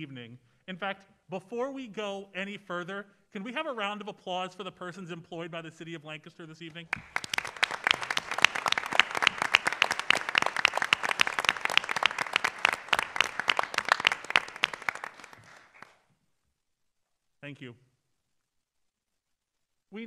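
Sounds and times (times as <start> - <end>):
audience applauding: 6.9 - 16.0.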